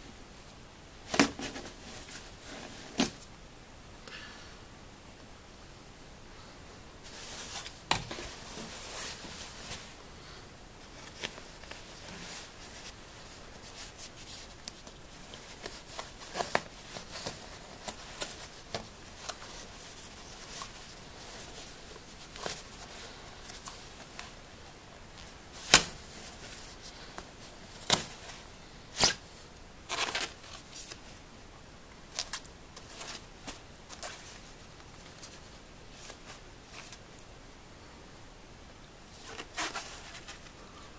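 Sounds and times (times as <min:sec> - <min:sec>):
nylon fabric rustling: 0:07.0 - 0:10.0, 0:10.8 - 0:29.2, 0:39.1 - 0:40.8.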